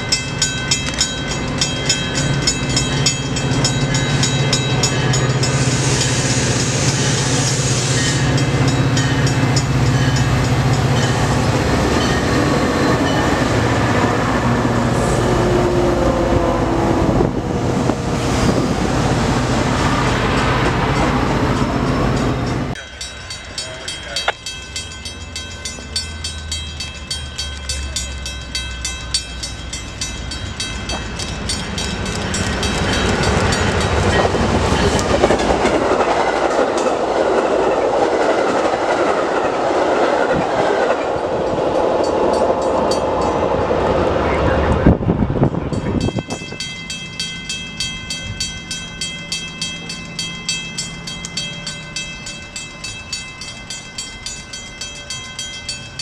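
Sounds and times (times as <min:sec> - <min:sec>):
rapid ringing bell: 0:00.0 - 0:06.2, 0:22.4 - 0:35.0, 0:45.7 - 0:56.0
approaching diesel train: 0:00.0 - 0:56.0
train wheels on rails: 0:00.0 - 0:56.0.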